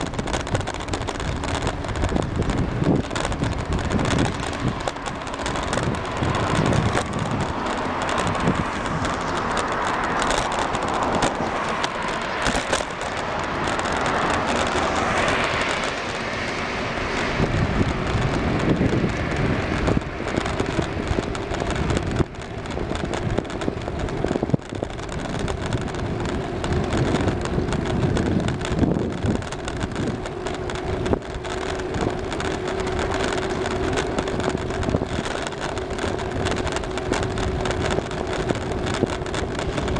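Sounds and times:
bicycle tyre and road noise: 0.0 - 39.9
wind on microphone: 0.0 - 39.9.

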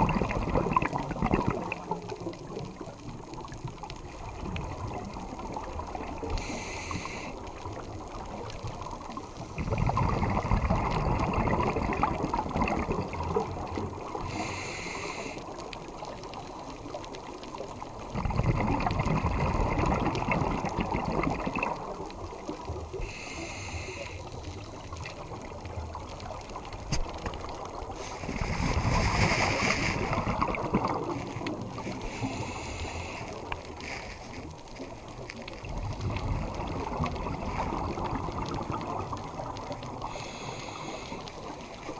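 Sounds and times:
bubbling exhaust underwater: 0.0 - 41.9
regulator hissing inhale: 6.3 - 7.5, 14.2 - 15.6, 23.0 - 24.6, 31.9 - 34.4, 40.0 - 41.6.

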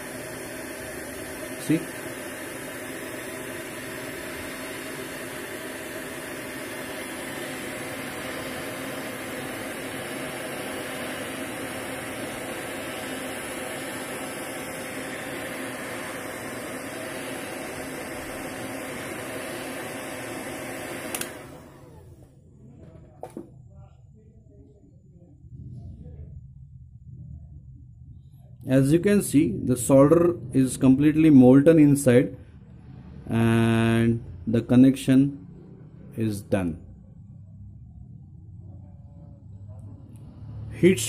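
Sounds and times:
hot air gun blowing: 0.0 - 21.5
fan winding down with whine: 0.0 - 41.0.

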